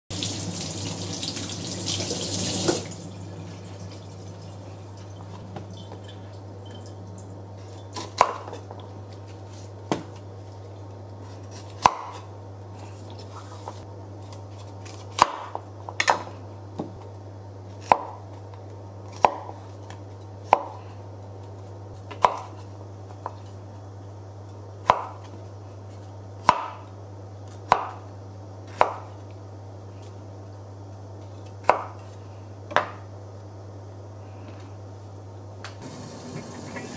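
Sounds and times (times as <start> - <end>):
running water: 0.1 - 6.3, 35.8 - 36.9
low steady hum: 0.1 - 36.9.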